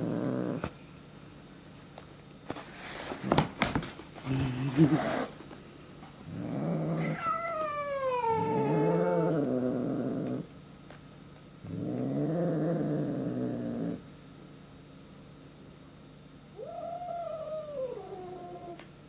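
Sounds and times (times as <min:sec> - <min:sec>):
cat growling and yowling: 0:06.3 - 0:10.5, 0:16.6 - 0:18.8.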